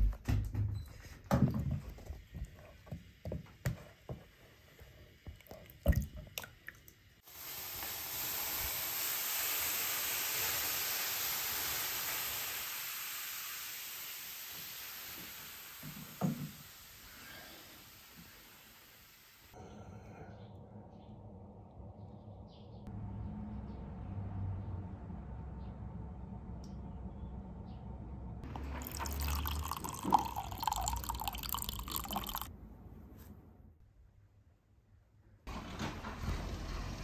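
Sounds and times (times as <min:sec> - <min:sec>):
steam hissing off hot stones: 0:07.2 - 0:19.6.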